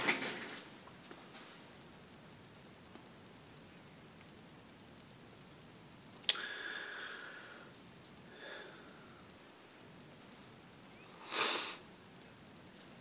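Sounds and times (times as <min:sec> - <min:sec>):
short breathy hiss: 0:06.3 - 0:07.7, 0:08.3 - 0:09.8, 0:11.0 - 0:11.9.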